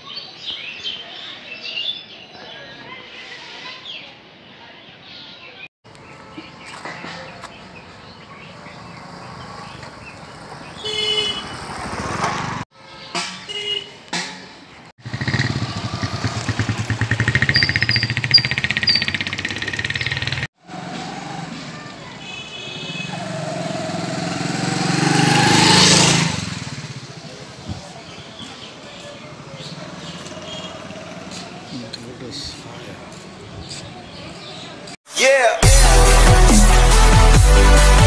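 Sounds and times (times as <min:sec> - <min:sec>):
motorcycle approaching close: 0:08.4 - 0:12.6, 0:15.0 - 0:22.2, 0:22.8 - 0:32.1
small motorcycles riding slowly: 0:15.0 - 0:34.9.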